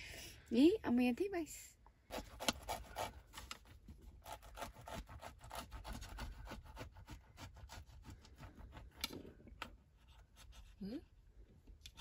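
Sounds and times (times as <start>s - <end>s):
knife sawing through bread: 2.1s - 3.4s, 4.2s - 9.0s.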